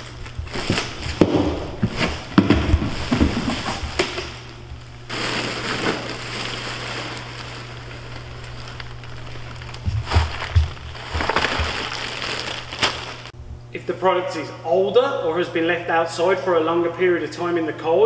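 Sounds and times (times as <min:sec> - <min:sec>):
plastic bag rustling: 0:00.0 - 0:13.4.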